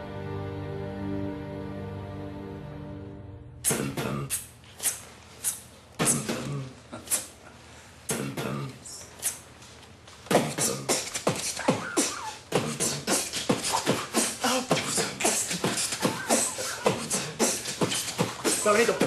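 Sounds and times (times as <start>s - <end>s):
person beatboxing: 3.6s - 7.3s, 8.1s - 9.4s, 10.3s - 19.0s.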